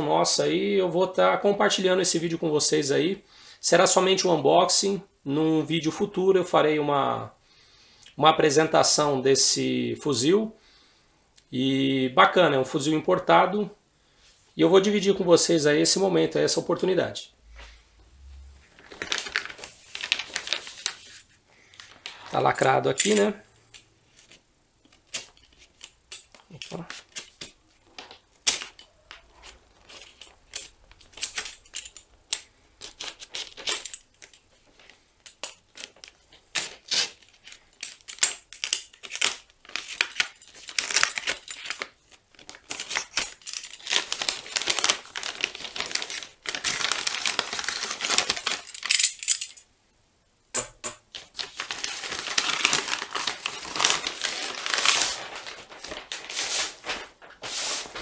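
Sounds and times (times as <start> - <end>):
paper crinkling and rustling: 18.6 - 49.3, 51.1 - 58.0.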